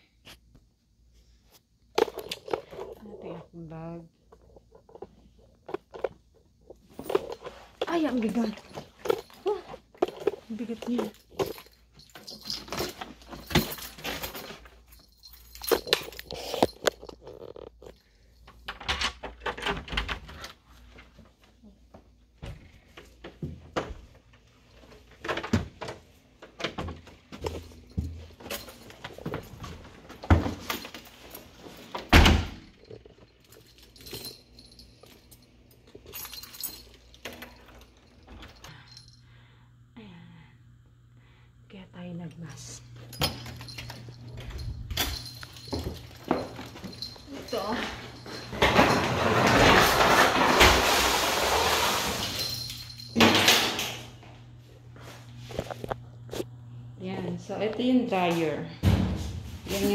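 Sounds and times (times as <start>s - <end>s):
keys jangling: 6.8s - 18.6s, 27.4s - 39.2s, 43.0s - 49.0s.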